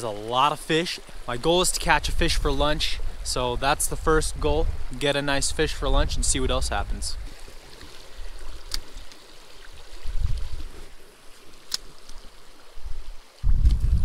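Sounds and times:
creek water flowing over gravel: 0.0 - 13.9
low rumbling on microphone: 12.8 - 14.0.

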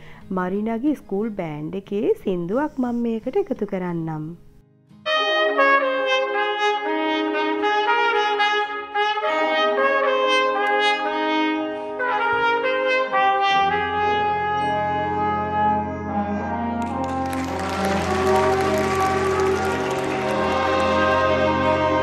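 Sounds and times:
school band playing brass: 5.1 - 22.0.

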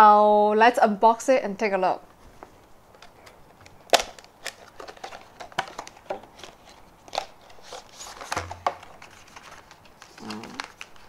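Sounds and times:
plastic and cardboard packaging crinkling: 2.9 - 11.0.

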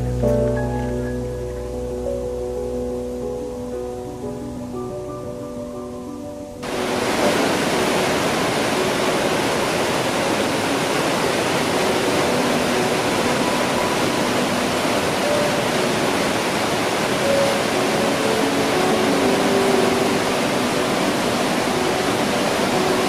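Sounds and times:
waterfall rushing: 6.6 - 23.0.

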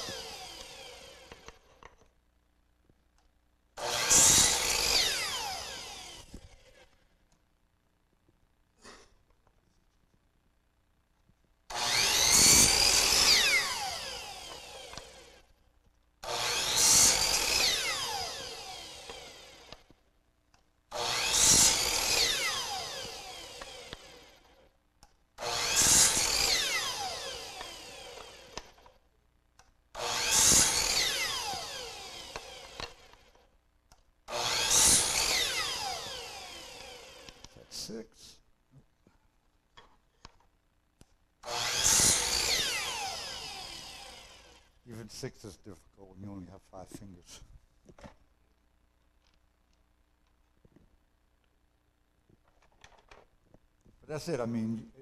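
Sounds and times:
chop saw cutting: 0.0 - 1.9, 3.8 - 7.0, 11.7 - 15.5, 16.2 - 20.0, 20.9 - 24.7, 25.4 - 29.0, 30.0 - 33.5, 34.3 - 38.0, 41.4 - 45.3.

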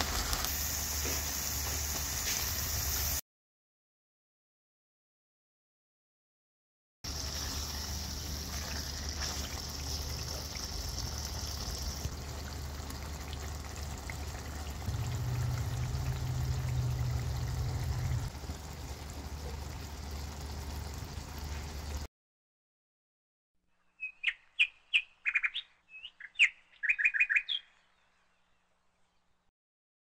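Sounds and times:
meat sizzling in oil: 0.0 - 3.2, 7.1 - 13.2
low hum: 7.1 - 22.0.

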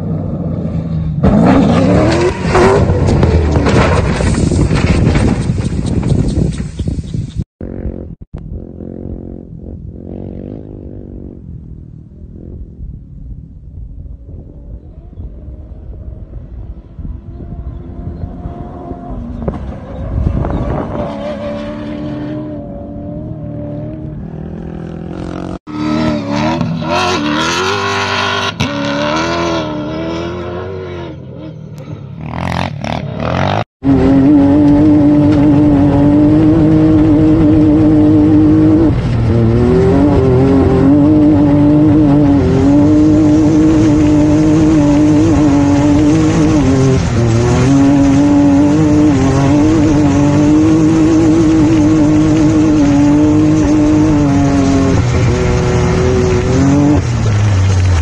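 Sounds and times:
rally car engine revving past: 32.3 - 57.2.

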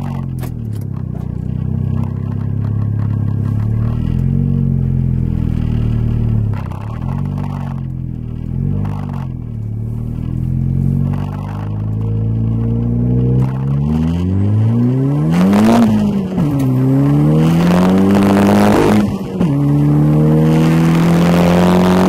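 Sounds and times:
car engine accelerating hard: 0.0 - 22.0.

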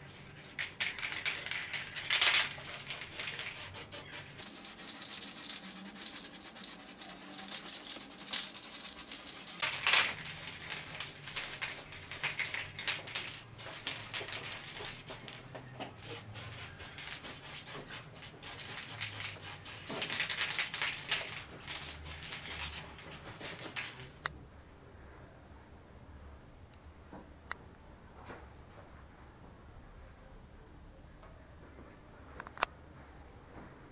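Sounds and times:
spray paint can hissing: 0.5 - 15.5, 16.4 - 24.0.

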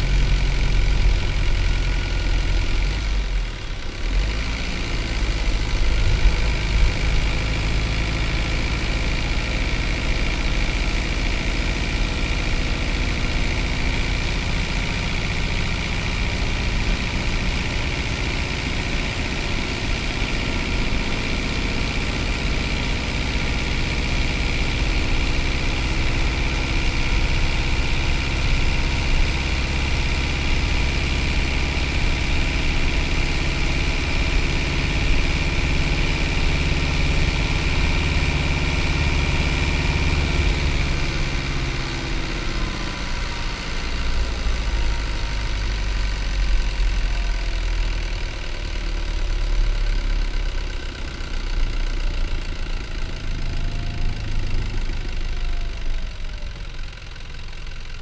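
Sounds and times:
diesel bus engine drone: 0.0 - 58.0.

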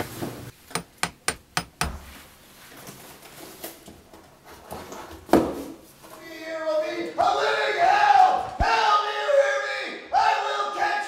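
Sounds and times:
hammer striking tiled wall: 0.7 - 2.0.

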